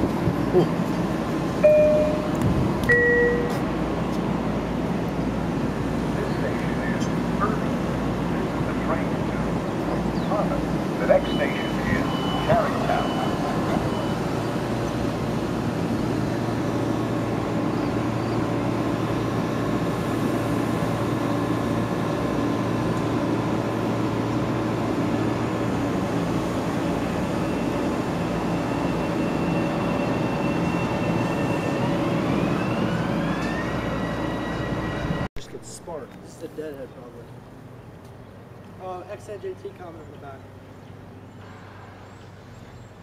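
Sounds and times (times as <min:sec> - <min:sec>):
train equipment hum: 0:00.0 - 0:39.1
traction motors climbing whine: 0:06.0 - 0:35.3.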